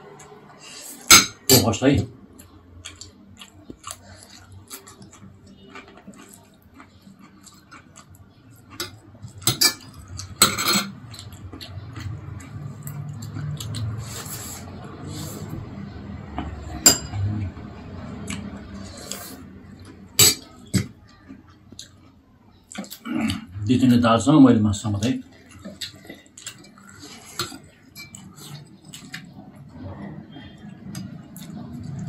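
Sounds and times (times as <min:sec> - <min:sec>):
eating noises: 0:02.2 - 0:32.0.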